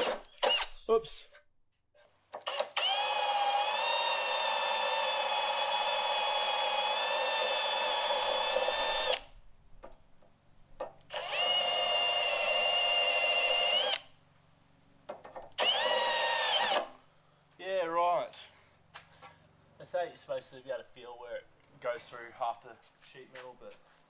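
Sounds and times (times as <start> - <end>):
power drill whining: 0.0 - 0.8, 2.4 - 9.3, 11.1 - 14.0, 15.6 - 17.0.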